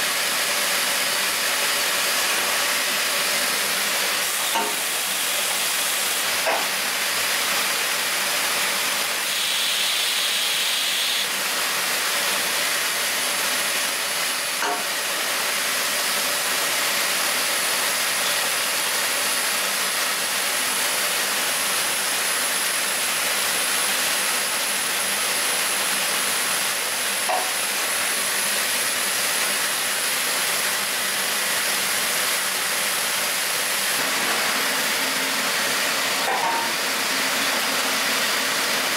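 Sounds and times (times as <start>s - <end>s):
spray hissing: 9.2s - 11.3s.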